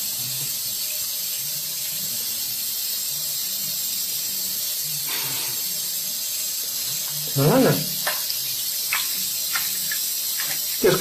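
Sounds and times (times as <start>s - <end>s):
tap water running into sink: 0.0s - 11.0s.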